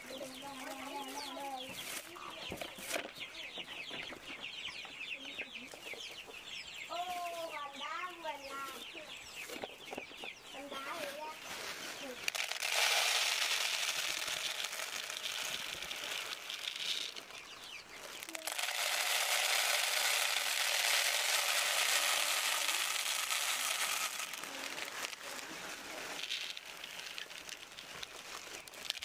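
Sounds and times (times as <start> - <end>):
grain pouring into plastic feeder: 11.0 - 17.3, 18.2 - 29.0
plastic bag crinkling: 11.0 - 17.4, 18.0 - 29.0.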